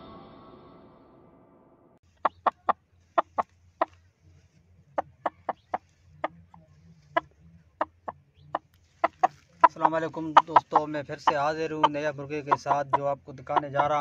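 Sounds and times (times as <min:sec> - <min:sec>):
rooster clucking: 0:02.1 - 0:04.1, 0:04.9 - 0:14.0.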